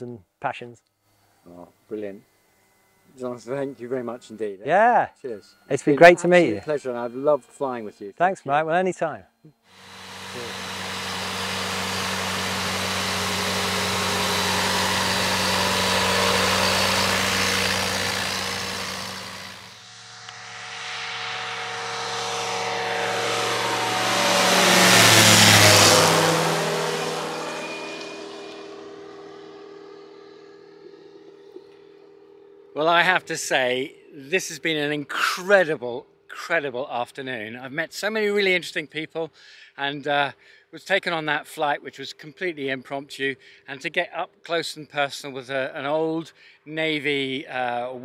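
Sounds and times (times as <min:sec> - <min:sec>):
propeller aircraft engine: 0:09.7 - 0:32.7
light aircraft passing overhead: 0:13.1 - 0:34.6.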